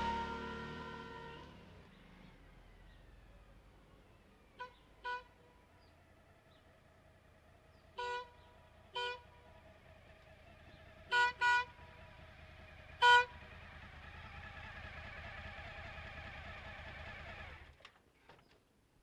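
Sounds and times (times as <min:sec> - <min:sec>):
motorcycle air horn blasts: 0:00.0 - 0:01.6, 0:04.6 - 0:05.4, 0:08.0 - 0:09.4, 0:11.1 - 0:11.8, 0:13.0 - 0:13.4
motorcycle engine running: 0:00.0 - 0:17.8.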